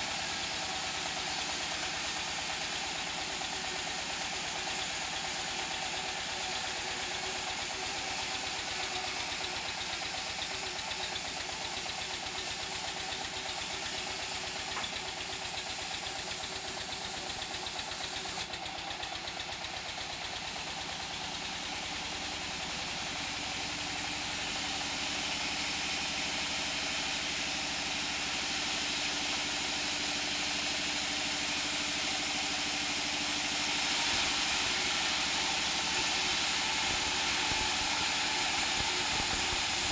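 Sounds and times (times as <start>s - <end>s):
saw blade cutting wood: 0.0s - 18.5s, 33.4s - 39.9s
engine drone: 28.2s - 39.9s.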